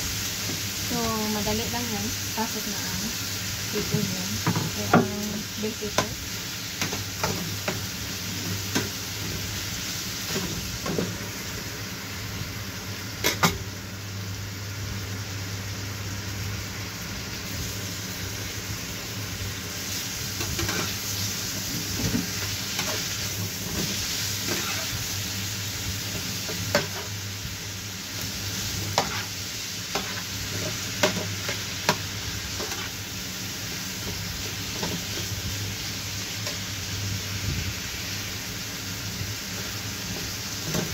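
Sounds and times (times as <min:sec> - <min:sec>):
food sizzling in a frying pan: 0:00.0 - 0:40.9
spatula scraping a pan: 0:23.8 - 0:25.0, 0:28.9 - 0:32.0, 0:32.6 - 0:33.0.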